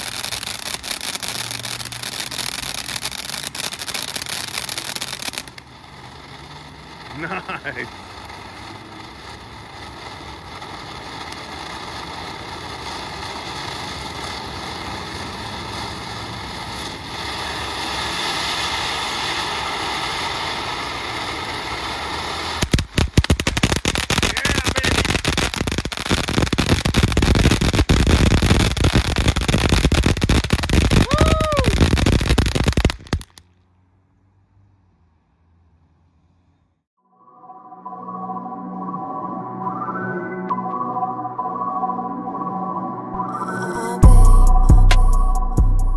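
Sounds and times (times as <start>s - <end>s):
firework fountain hissing: 0.0s - 33.5s
firework crackling: 0.0s - 33.9s, 43.2s - 45.9s.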